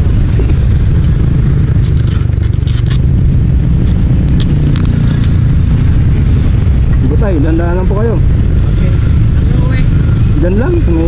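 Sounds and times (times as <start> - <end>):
road traffic rumble: 0.0 - 11.0
metal scrapes and clicks: 1.8 - 3.0.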